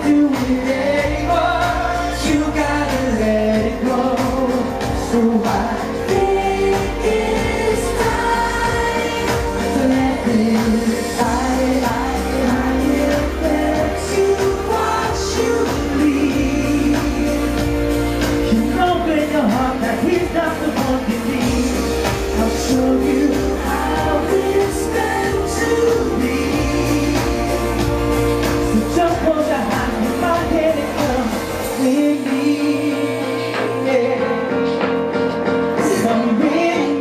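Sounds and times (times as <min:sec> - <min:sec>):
man singing into microphone: 0:00.0 - 0:37.0
pop music accompaniment: 0:00.0 - 0:37.0.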